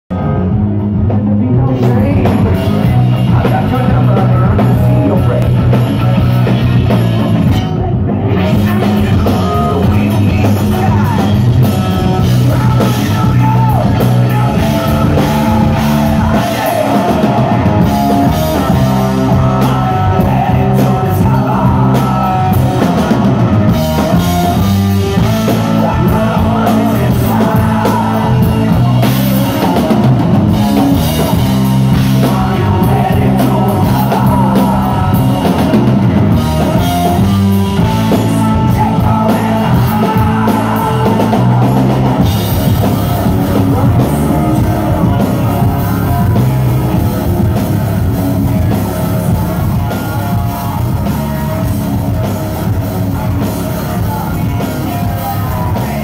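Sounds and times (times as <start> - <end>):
bass guitar: 0.0 - 56.0
drum kit: 0.1 - 56.0
electric guitar: 0.1 - 56.0
person singing: 0.1 - 56.0.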